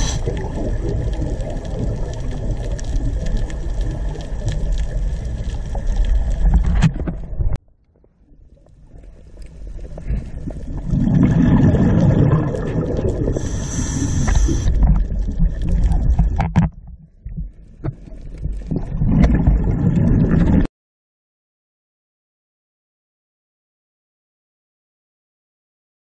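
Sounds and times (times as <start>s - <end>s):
short high hiss: 0.0s - 0.3s, 13.4s - 14.7s
muffled underwater rumble: 0.0s - 20.7s.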